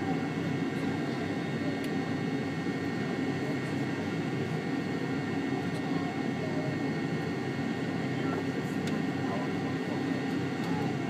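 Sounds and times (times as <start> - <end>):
jet engine cabin drone: 0.0 - 11.0.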